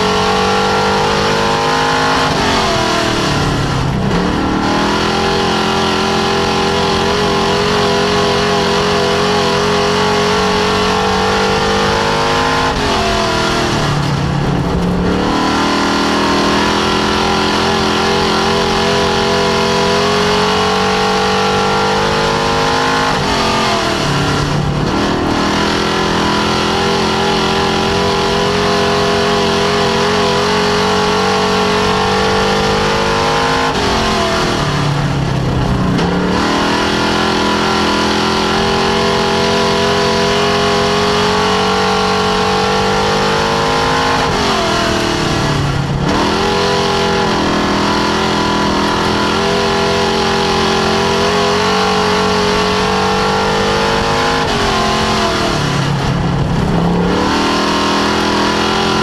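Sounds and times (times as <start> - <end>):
race car engine revving: 0.0 - 59.0.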